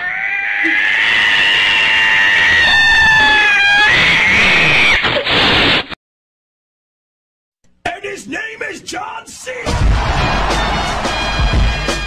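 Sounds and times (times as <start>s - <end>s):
cat yowling: 0.0s - 5.1s.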